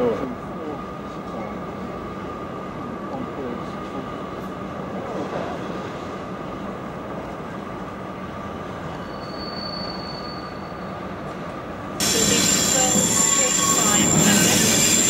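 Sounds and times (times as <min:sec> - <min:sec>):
freight train running: 0:00.0 - 0:15.0
high wheel squeal: 0:08.9 - 0:11.1, 0:12.0 - 0:15.0.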